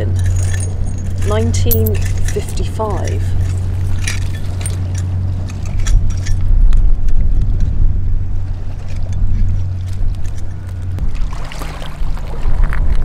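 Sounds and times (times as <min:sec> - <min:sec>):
low engine drone: 0:00.0 - 0:13.0.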